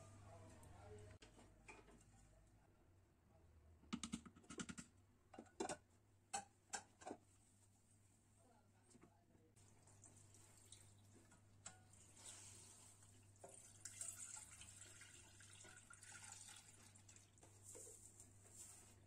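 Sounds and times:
juice pouring into saucepan: 9.6s - 11.2s, 11.9s - 17.4s.

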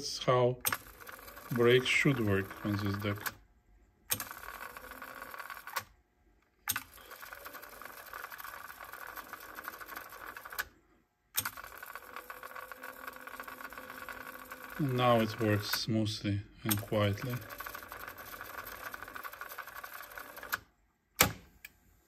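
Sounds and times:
cassette tape fast-winding: 0.7s - 3.4s, 4.1s - 5.9s, 6.7s - 10.7s, 11.4s - 15.9s, 16.7s - 20.7s.

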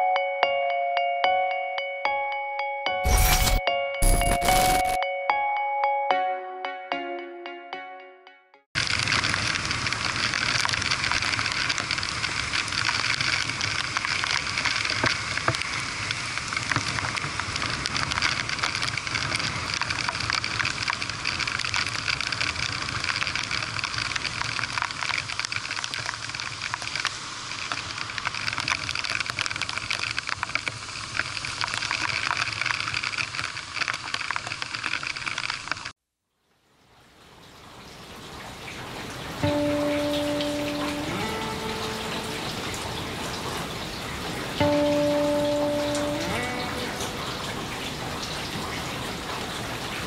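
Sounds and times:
raindrops ticking on microphone: 8.8s - 50.0s
heavy rain hissing: 38.2s - 50.0s.

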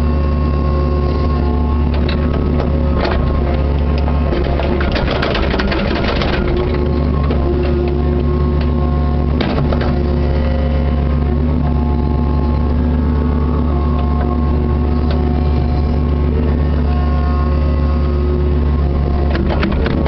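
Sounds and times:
diesel engine running: 0.0s - 20.0s
rattling and clatter: 1.9s - 7.8s.

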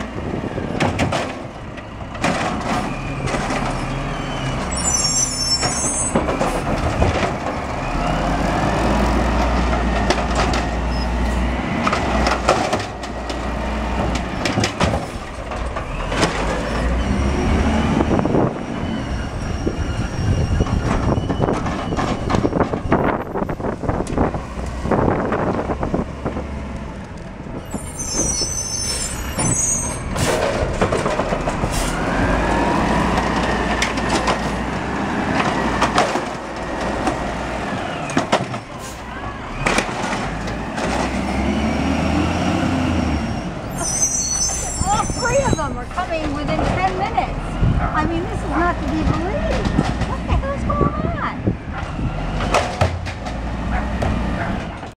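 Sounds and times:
garbage truck diesel engine revving: 6.2s - 21.6s, 30.1s - 43.7s, 45.8s - 54.9s
clanks of carts and arm: 9.4s - 11.2s, 19.8s - 23.2s, 29.3s - 32.2s, 33.0s - 41.6s, 44.4s - 50.5s, 51.7s - 54.9s
air brakes hissing: 27.7s - 30.4s.

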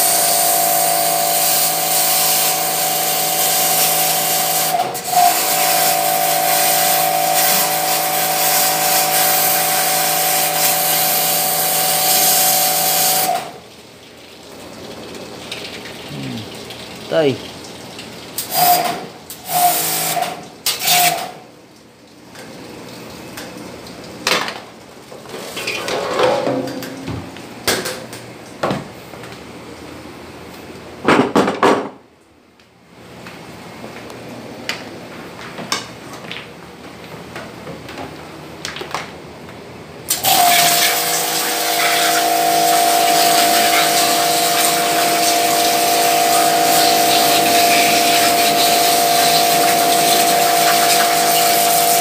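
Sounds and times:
pressure washer motor whine: 0.0s - 13.5s, 40.1s - 52.0s
water spraying onto dishes: 0.0s - 21.4s, 40.1s - 52.0s
water jet hitting metal: 25.6s - 28.1s, 40.4s - 52.0s.

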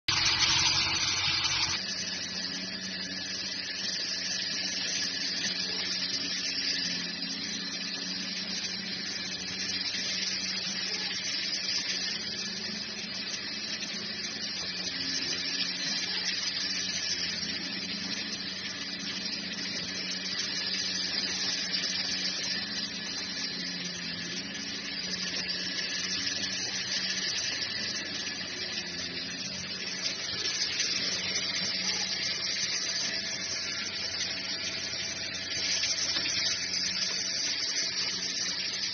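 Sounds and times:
band saw blade hissing: 0.1s - 38.9s
low motor hum: 0.1s - 38.9s.

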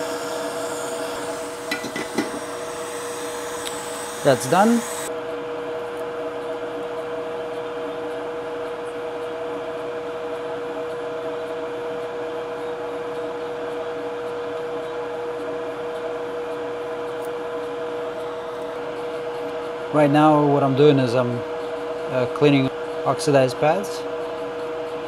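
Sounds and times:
extractor fan running: 0.0s - 6.0s.

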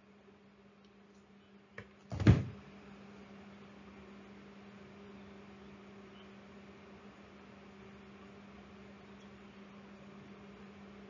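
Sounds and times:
low electrical hum: 0.0s - 11.0s
loud thump: 2.1s - 2.6s.

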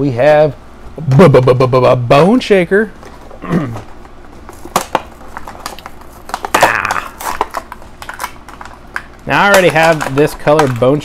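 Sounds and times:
plastic packaging crackling: 3.0s - 11.0s.

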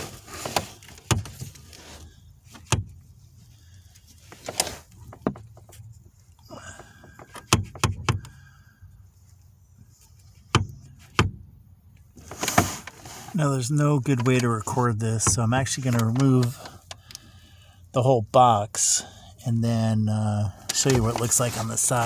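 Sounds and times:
sharp clicks and knocks: 4.3s - 6.0s, 6.8s - 8.4s, 14.0s - 17.2s.

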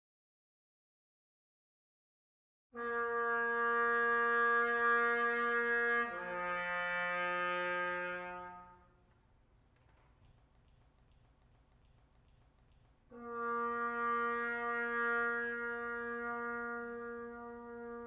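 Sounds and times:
bass trumpet held notes: 2.8s - 9.0s, 13.1s - 18.0s.

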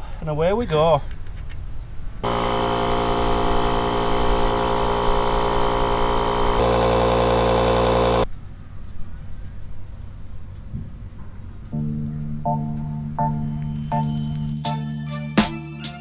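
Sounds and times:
air compressor humming: 2.2s - 8.3s.

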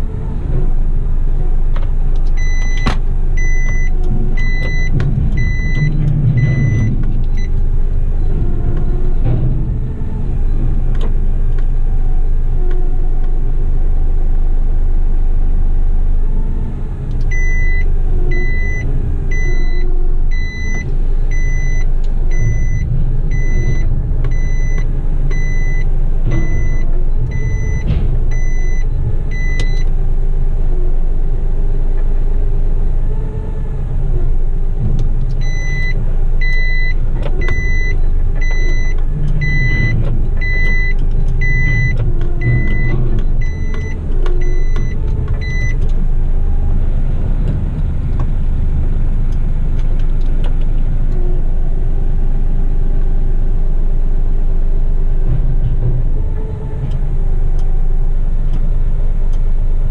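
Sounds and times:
diesel truck engine running: 0.0s - 59.9s
electronic warning beeper: 2.4s - 7.5s, 17.3s - 29.8s.

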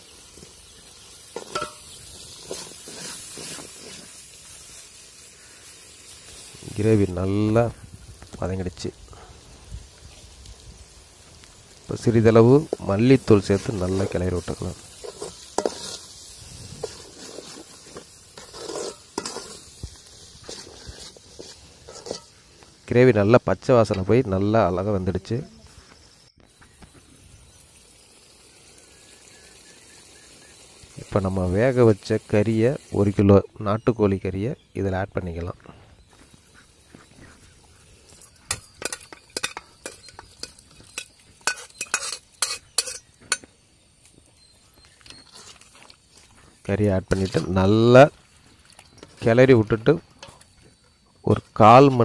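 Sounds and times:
gravy sizzling in oil: 0.0s - 25.4s, 26.0s - 34.2s, 36.0s - 52.0s
spoon clinking on pot: 1.4s - 1.8s, 38.5s - 43.5s
spoon scraping metal pot: 1.4s - 4.1s, 12.7s - 19.8s, 20.4s - 22.4s, 38.2s - 43.5s.

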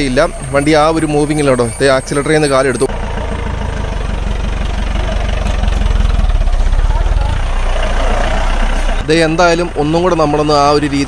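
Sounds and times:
jeep engine idling: 0.0s - 11.0s.

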